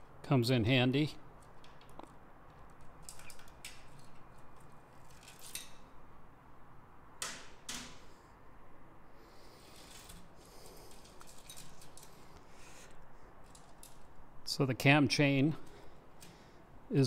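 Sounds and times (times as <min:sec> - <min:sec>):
metal chain clinking and rattling: 0:10.9 - 0:12.3.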